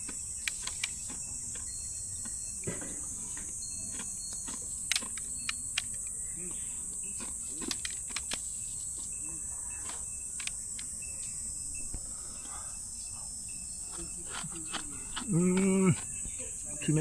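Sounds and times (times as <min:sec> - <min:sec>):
small sharp clicks: 0:00.0 - 0:02.4, 0:03.9 - 0:06.2, 0:07.2 - 0:09.1, 0:09.8 - 0:11.4
high-pitched insect drone: 0:00.0 - 0:17.0.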